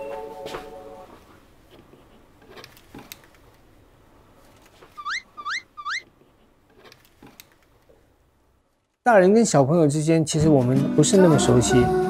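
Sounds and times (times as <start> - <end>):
comic rising whistle chirps: 5.0 - 6.0.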